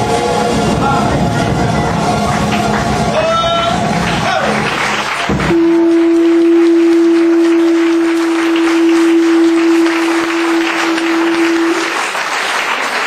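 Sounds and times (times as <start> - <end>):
horn long steady note: 0.0 - 12.7
crowd clapping: 1.7 - 13.0.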